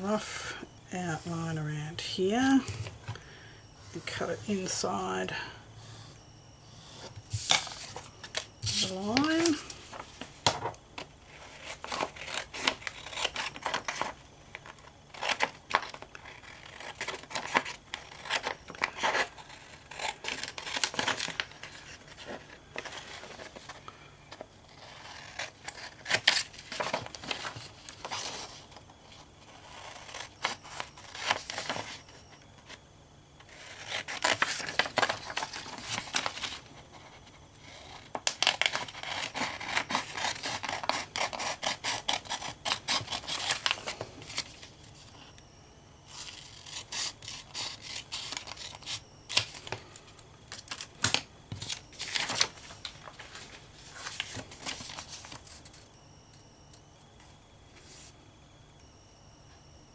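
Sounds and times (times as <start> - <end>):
paper rustling: 7.0 - 10.8, 51.5 - 55.7
scissors snipping paper: 8.6 - 9.6.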